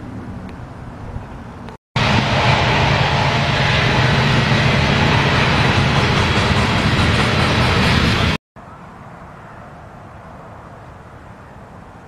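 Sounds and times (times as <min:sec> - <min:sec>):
diesel locomotive engine drone: 0:00.0 - 0:08.8
train wheels on rails: 0:02.0 - 0:08.4.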